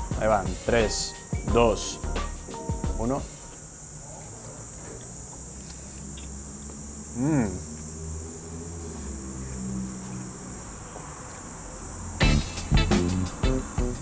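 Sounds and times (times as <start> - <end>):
high-pitched hiss: 0.0 - 4.0, 11.5 - 14.0
man humming mmm: 7.1 - 7.8.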